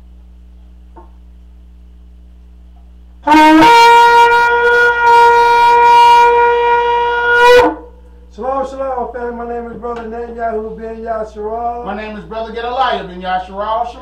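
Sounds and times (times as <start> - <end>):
shofar blast: 3.2 - 8.0.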